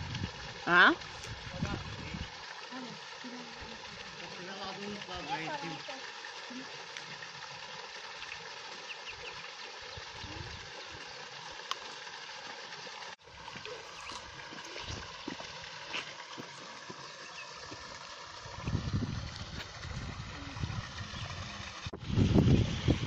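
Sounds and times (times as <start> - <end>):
waterfall splashing into pool: 0.0 - 23.0
wind buffeting microphone: 1.2 - 2.3, 18.4 - 23.0.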